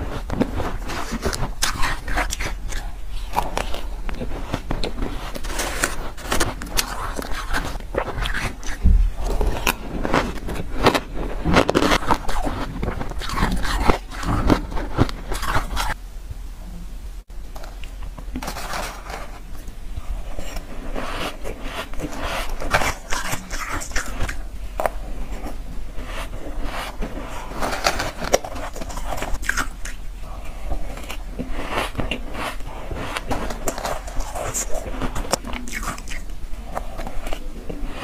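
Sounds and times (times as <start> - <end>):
chewing crunchy ice: 0.8 - 16.0, 21.2 - 25.6, 27.2 - 30.0, 30.6 - 37.8.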